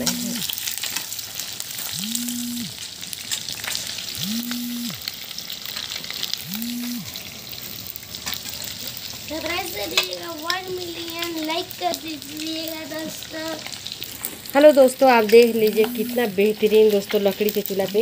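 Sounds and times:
fish deep-frying in oil: 0.0s - 18.0s
low hum: 6.4s - 7.2s.

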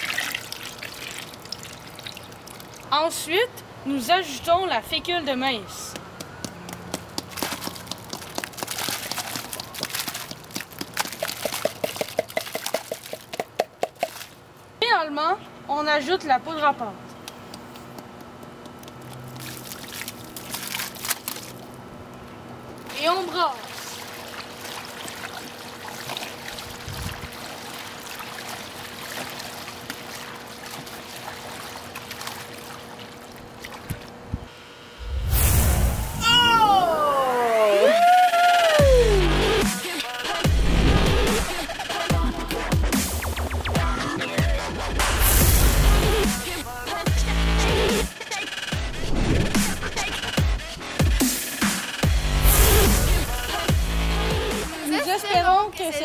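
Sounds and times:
powder pouring into water: 0.0s - 2.9s, 7.5s - 13.4s
water sloshing and splashing: 0.0s - 3.0s, 7.2s - 14.4s, 19.3s - 21.7s, 22.9s - 34.3s
loud low rumble: 35.0s - 36.9s.

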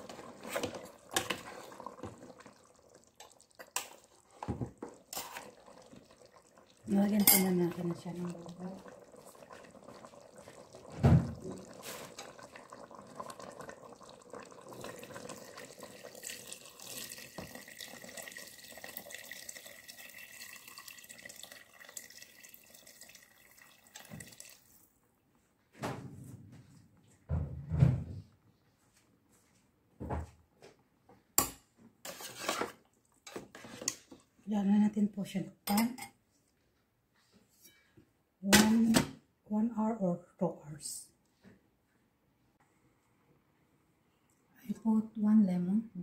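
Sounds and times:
water pouring into a pot: 0.0s - 24.9s
knocks and thumps: 25.8s - 28.3s.

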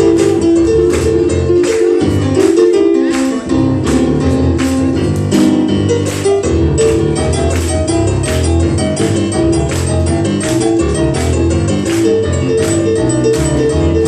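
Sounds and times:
boogie-woogie piano: 0.0s - 14.0s.

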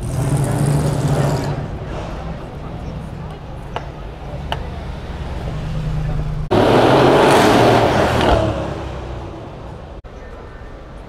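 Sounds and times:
car passing close by: 5.0s - 10.0s.

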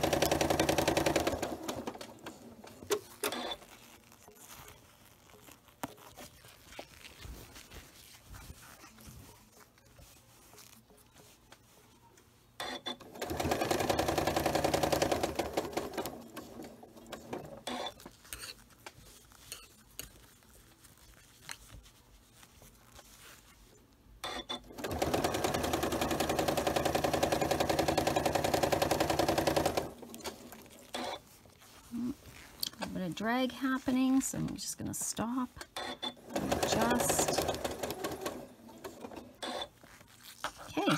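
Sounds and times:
sewing machine stitching: 0.0s - 3.8s, 12.6s - 18.1s, 24.2s - 31.8s, 35.7s - 40.0s.

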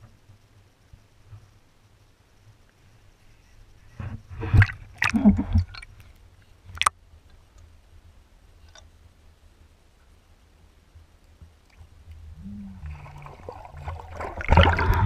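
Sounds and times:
muffled low underwater rumble: 0.0s - 15.0s
water splashing and gurgling: 4.3s - 6.1s, 11.7s - 15.0s.

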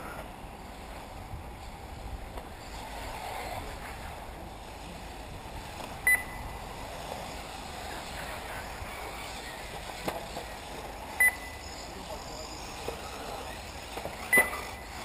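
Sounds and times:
outdoor noise: 0.0s - 15.0s
rc cars motors and tyres hissing: 0.0s - 15.0s
short high beep: 6.0s - 6.5s, 11.2s - 11.7s, 14.3s - 14.6s.

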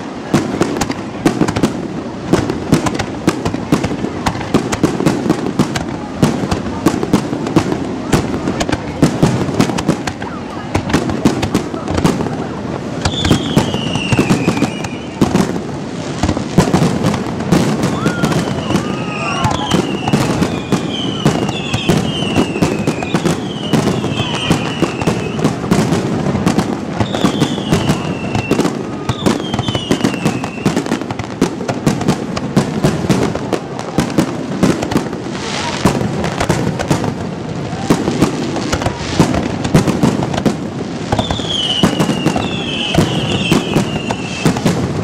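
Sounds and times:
fireworks bangs and crackling: 0.0s - 45.0s
falling firework whistles: 13.0s - 15.5s, 17.6s - 25.8s, 26.5s - 31.1s, 41.1s - 44.8s.

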